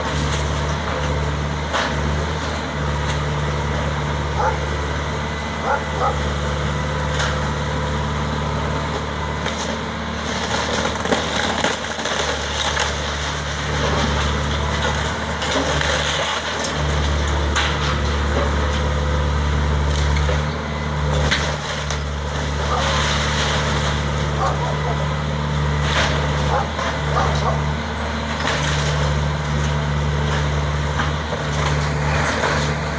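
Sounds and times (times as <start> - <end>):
excavator diesel engine under load: 0.0 - 32.9
splintering timber cracks: 9.4 - 18.5, 21.1 - 24.7
falling debris: 9.4 - 19.0, 19.9 - 27.5, 28.2 - 32.9.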